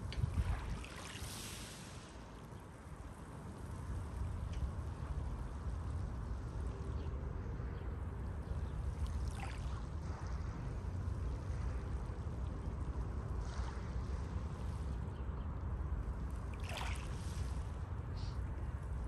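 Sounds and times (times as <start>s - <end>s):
low surf rumble: 0.0s - 19.0s
water hissing over pebbles: 0.6s - 2.4s.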